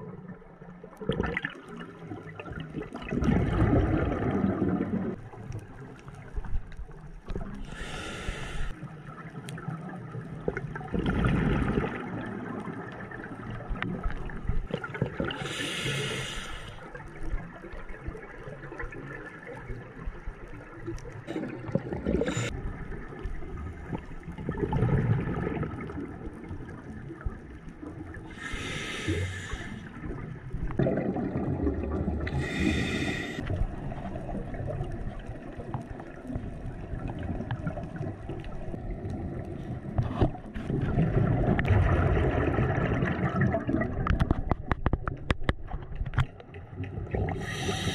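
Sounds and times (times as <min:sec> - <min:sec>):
gurgling exhaled bubbles: 0:00.0 - 0:05.4, 0:07.3 - 0:47.9
hissing regulator inhalations: 0:07.7 - 0:08.8, 0:15.4 - 0:16.8, 0:22.1 - 0:22.5, 0:28.4 - 0:30.0, 0:32.3 - 0:33.5, 0:47.3 - 0:47.9.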